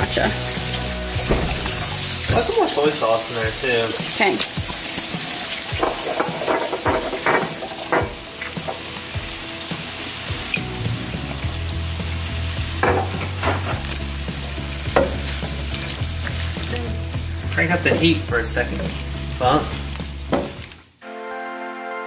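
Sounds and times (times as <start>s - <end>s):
food sizzling in a skillet: 0.0s - 21.0s
spatula scraping a pan: 1.6s - 9.0s, 12.9s - 13.9s.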